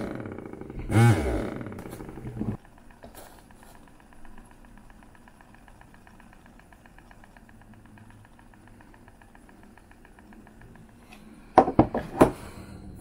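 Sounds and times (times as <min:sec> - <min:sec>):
electric hair clippers buzzing: 0:00.0 - 0:02.6.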